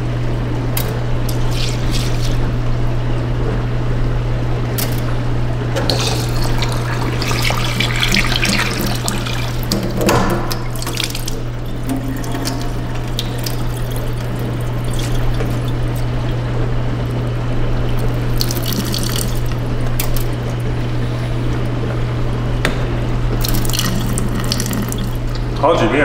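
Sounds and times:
steady low hum: 0:00.0 - 0:26.0
water splashing into sink: 0:00.8 - 0:02.5, 0:05.8 - 0:20.8, 0:23.3 - 0:25.6.

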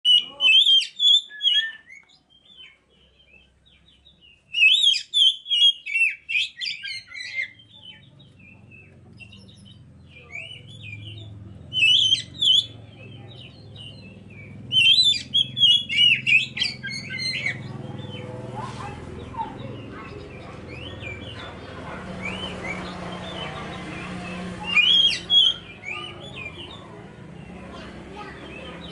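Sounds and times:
bird singing whistled phrases: 0:00.0 - 0:02.8, 0:04.4 - 0:08.0, 0:10.3 - 0:12.8, 0:13.5 - 0:17.7, 0:24.6 - 0:26.8.

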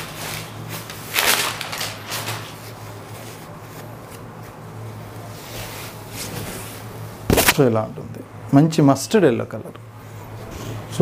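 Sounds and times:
silk fabric and paper rustling: 0:00.0 - 0:04.6.

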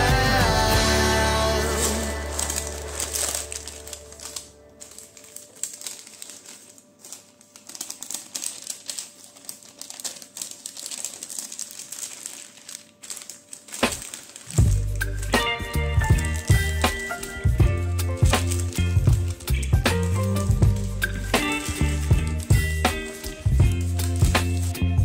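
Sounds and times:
background music: 0:00.0 - 0:06.3, 0:13.8 - 0:25.0
baking parchment crinkling: 0:01.4 - 0:25.0.

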